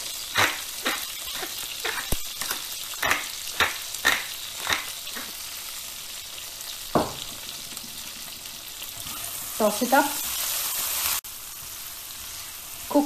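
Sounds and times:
pepper mill grinding: 0:00.0 - 0:05.4
food sizzling in oil: 0:00.0 - 0:13.0.

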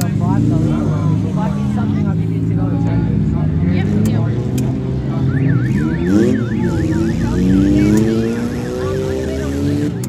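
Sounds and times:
car engines revving: 0:00.0 - 0:10.0
warbling siren: 0:05.2 - 0:10.0.

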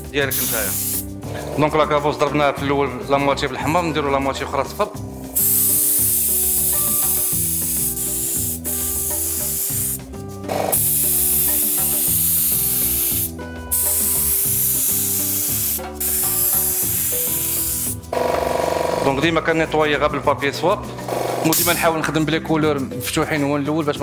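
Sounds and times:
faint background music: 0:00.0 - 0:24.0
spray gun hissing: 0:00.3 - 0:01.1, 0:05.4 - 0:10.0, 0:10.6 - 0:18.1.

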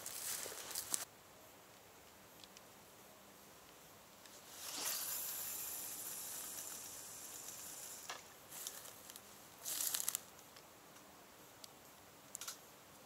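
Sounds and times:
fishing line hissing off reel: 0:04.3 - 0:09.0.

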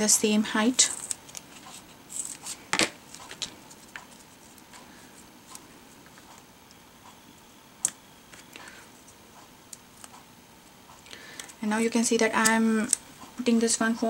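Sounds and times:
small taps and rustles: 0:02.7 - 0:04.9.

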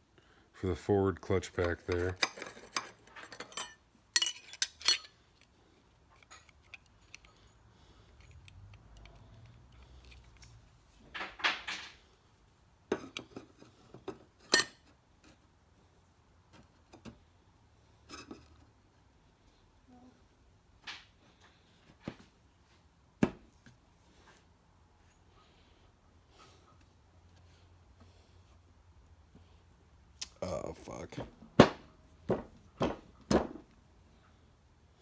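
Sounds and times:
steel parts clinking: 0:01.6 - 0:05.2.

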